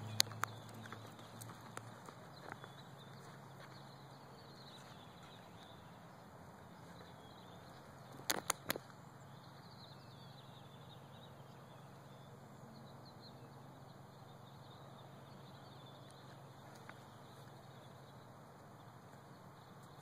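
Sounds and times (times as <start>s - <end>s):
sharp clicks: 0.0s - 2.7s, 8.1s - 9.0s
faint bird chirps: 0.0s - 20.0s
faint outdoor background: 0.0s - 20.0s.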